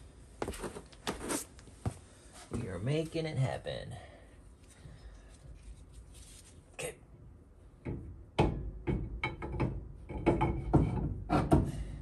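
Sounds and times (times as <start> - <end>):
metal knocks and clunks: 7.8 - 11.9.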